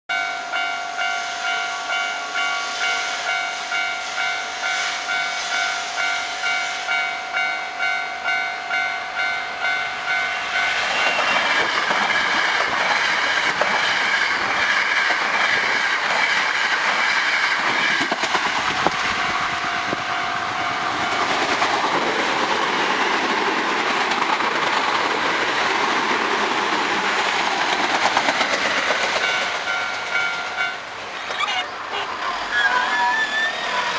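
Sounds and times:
level-crossing alarm bell ringing: 0.1s - 12.6s, 18.8s - 21.6s, 29.2s - 30.9s
electric train passing: 0.1s - 33.9s.

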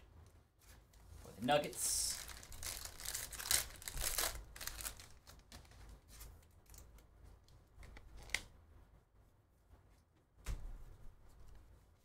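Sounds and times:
cards rustling: 1.6s - 6.9s
wrapper crinkling: 1.6s - 6.9s.

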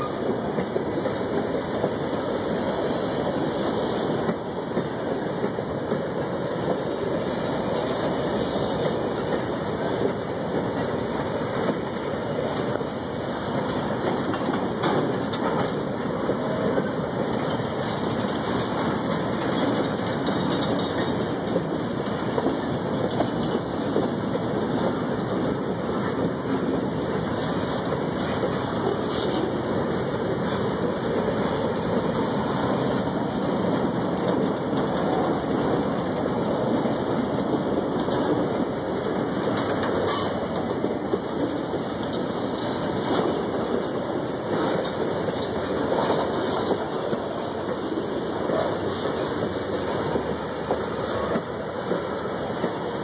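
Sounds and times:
rail clicks: 0.0s - 53.0s
steel wheels on rails: 0.0s - 53.0s.

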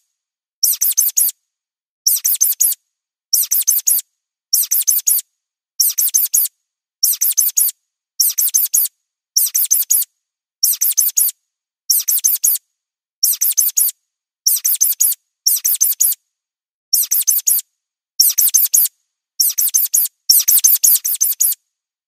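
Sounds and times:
mouse squeaking: 0.6s - 1.4s, 2.1s - 2.8s, 3.4s - 4.0s, 4.6s - 5.2s, 5.8s - 12.6s, 13.2s - 16.2s, 16.9s - 17.6s, 18.2s - 21.6s.

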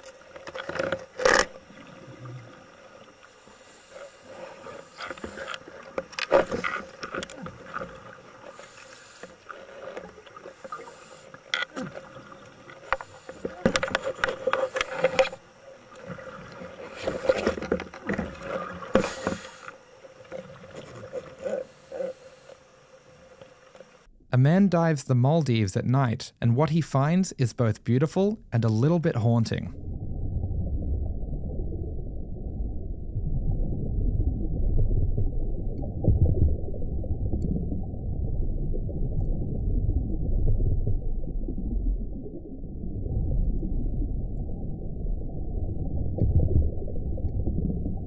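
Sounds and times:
faint steady hum: 0.0s - 48.0s
diver's bubbles rushing: 28.6s - 48.0s.

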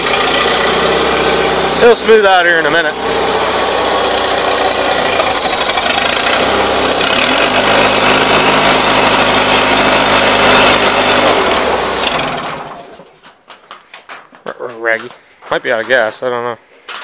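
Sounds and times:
tractor engine running ragged: 0.0s - 13.3s.

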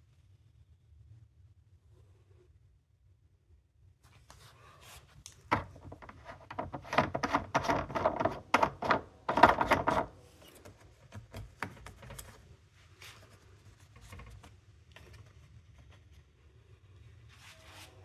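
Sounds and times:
handling clicks taps and scrapes: 5.2s - 16.2s.

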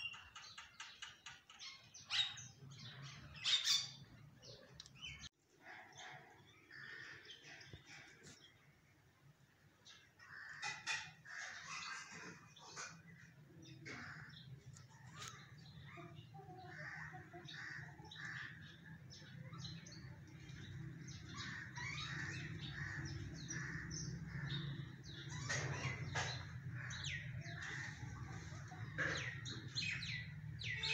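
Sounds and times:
small birds chirping: 0.0s - 30.9s
crows cawing: 10.2s - 12.4s, 21.4s - 24.8s.

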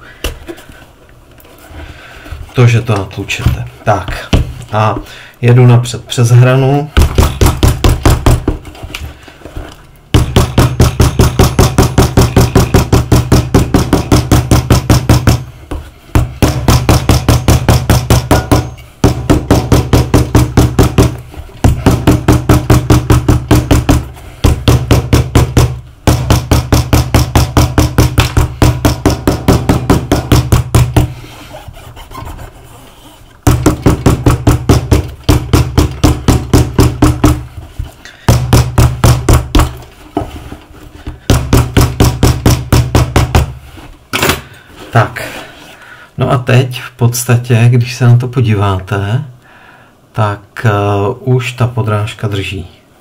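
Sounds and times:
hammer pounding shoe sole: 7.0s - 8.7s, 10.1s - 31.2s, 33.4s - 37.6s, 38.2s - 40.3s, 41.0s - 43.6s.

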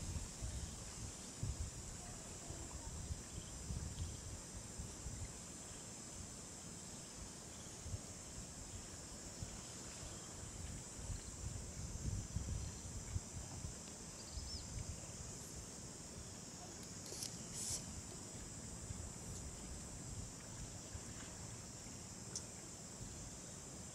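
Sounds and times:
insects droning: 0.0s - 23.9s.

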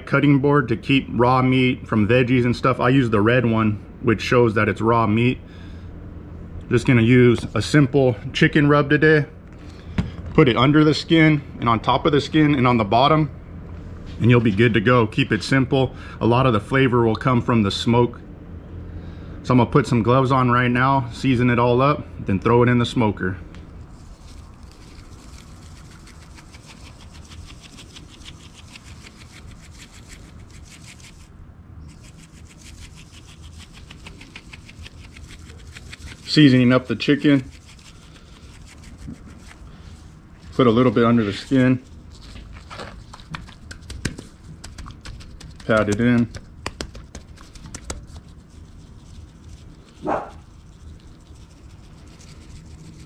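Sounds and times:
shaker bottle rattling: 24.0s - 31.3s, 31.9s - 36.5s, 37.2s - 39.6s, 42.2s - 53.0s
gloved hands patting raw chicken: 42.3s - 48.4s.

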